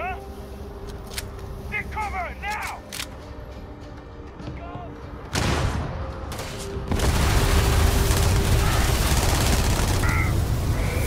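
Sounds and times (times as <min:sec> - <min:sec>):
video game gunfire and booms: 0:05.3 - 0:11.0.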